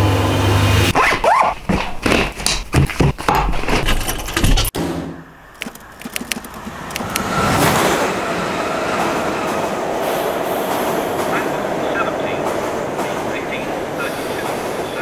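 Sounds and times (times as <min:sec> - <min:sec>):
backpack clicks: 0:05.6 - 0:07.2.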